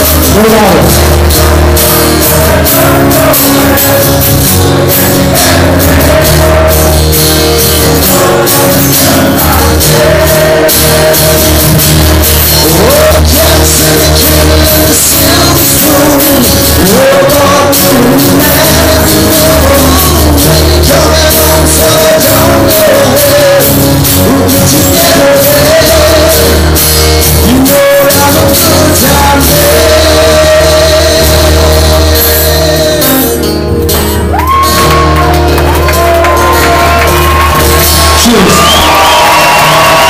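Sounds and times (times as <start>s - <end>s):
voices singing and shouting: 0.0s - 12.0s
rock band playing live: 0.0s - 40.0s
sliding high guitar notes: 0.0s - 40.0s.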